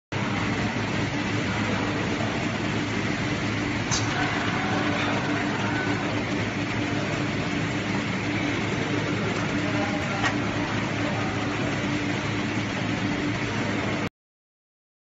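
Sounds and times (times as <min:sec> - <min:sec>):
laser marking machine humming: 0:00.2 - 0:14.1.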